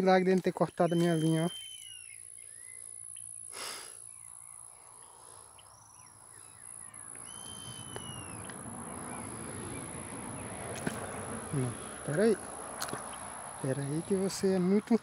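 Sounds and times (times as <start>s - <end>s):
bird chirps: 0.7s - 12.0s
bird whistles: 0.9s - 2.2s, 7.2s - 8.4s.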